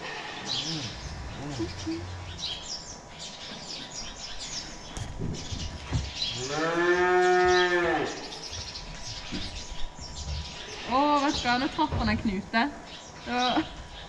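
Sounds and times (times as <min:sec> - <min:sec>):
cow mooing: 0:00.0 - 0:02.4, 0:06.4 - 0:08.3.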